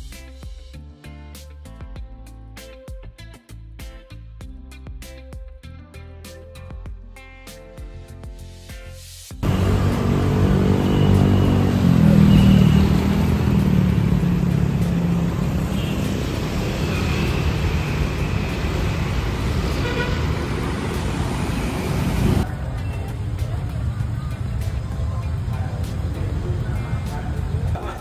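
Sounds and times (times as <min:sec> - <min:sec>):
city street traffic: 0:09.3 - 0:28.0
engine revving: 0:09.4 - 0:22.5.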